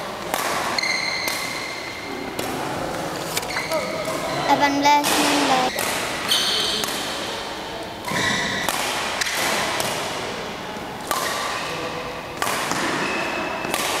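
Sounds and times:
shoes squeaking on court floor: 3.2s - 6.8s
racket striking shuttlecock: 4.9s - 7.2s, 8.0s - 10.2s, 11.0s - 11.6s, 12.4s - 14.0s.

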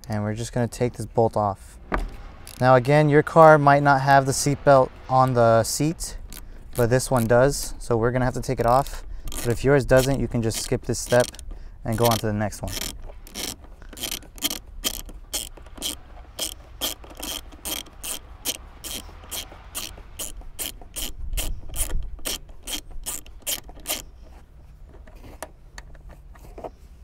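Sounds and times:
hand ratchet clicking: 2.4s - 2.7s, 6.2s - 7.7s, 8.6s - 24.4s.

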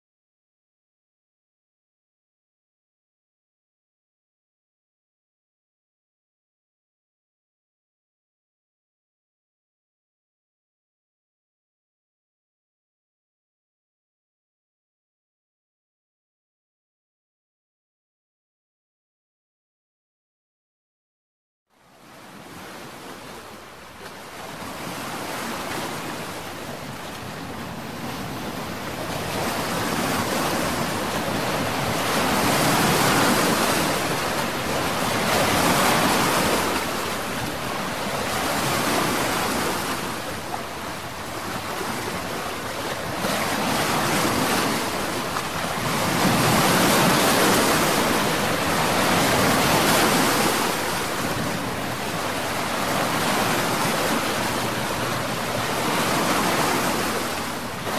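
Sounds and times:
sea waves breaking: 21.8s - 57.9s.

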